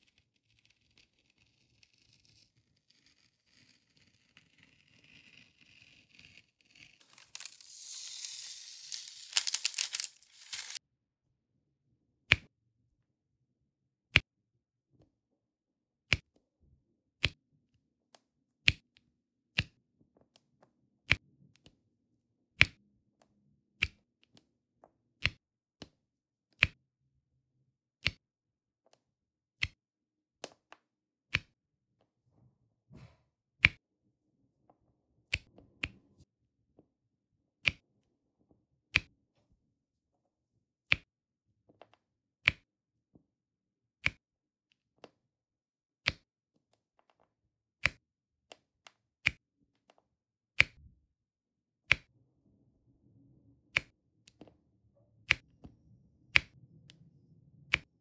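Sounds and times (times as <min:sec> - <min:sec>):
knife scratching plastic film: 0:05.8 - 0:10.8
plastic film tearing: 0:07.0 - 0:10.8.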